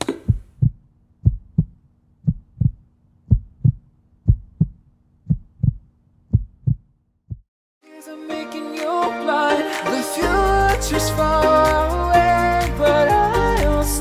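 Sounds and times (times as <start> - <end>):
heartbeat thumps: 0.1 - 7.5.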